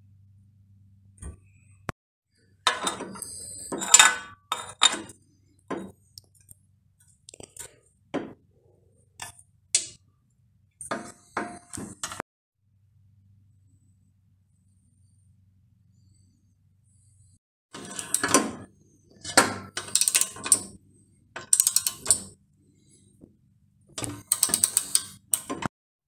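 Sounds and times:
metal bicycle parts clinking: 2.7s - 5.2s, 19.1s - 20.8s, 21.4s - 22.4s, 24.0s - 25.6s
metal scraping and rattling: 2.7s - 5.2s, 17.8s - 20.8s.

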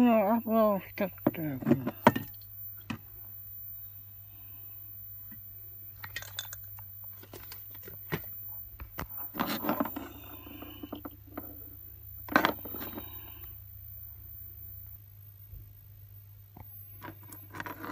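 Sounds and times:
low steady hum: 0.0s - 17.9s
clicks and clinks of handling objects: 6.0s - 8.2s.

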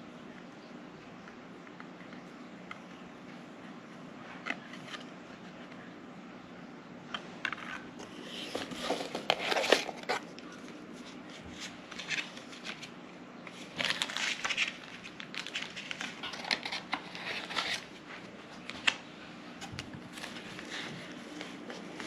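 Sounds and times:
packaging crinkling: 7.6s - 10.3s, 11.6s - 19.0s.

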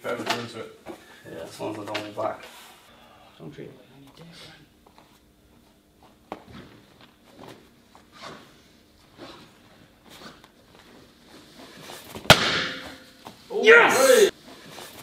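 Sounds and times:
bare feet on foam mat: 4.8s - 15.0s
kick cracking boards: 12.1s - 13.1s.

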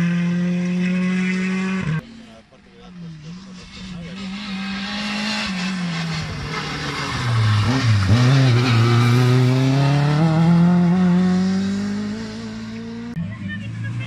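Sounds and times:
rally car engine: 0.0s - 14.0s.

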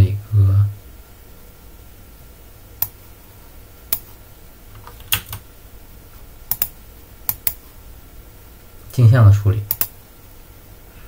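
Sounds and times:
faint low hum: 0.0s - 11.0s
computer keys or mouse clicks: 4.8s - 5.4s, 6.5s - 7.6s, 9.7s - 9.9s.

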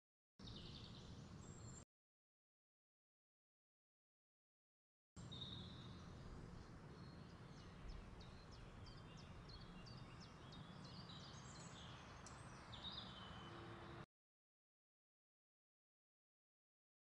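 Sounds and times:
small bird chirping: 5.2s - 14.0s.

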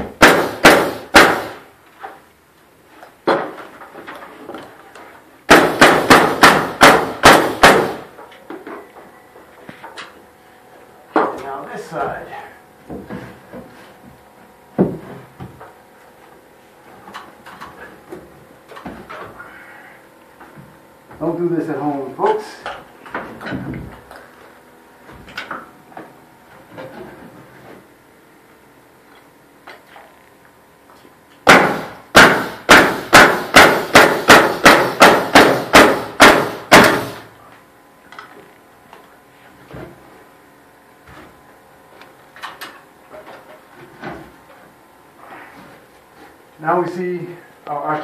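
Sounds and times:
hammer driving nails into wood: 0.2s - 1.6s, 5.5s - 8.1s, 31.4s - 37.2s
heavy wooden thump: 14.8s - 15.6s.

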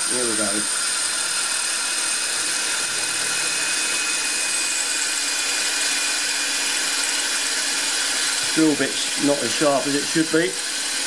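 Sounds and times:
hammer drill grinding into tile: 0.0s - 11.0s.

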